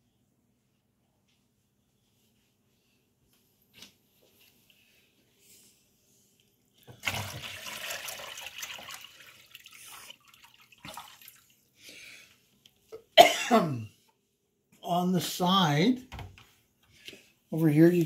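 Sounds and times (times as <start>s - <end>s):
water pouring and splashing: 6.9s - 11.7s
water trickling: 7.0s - 11.7s.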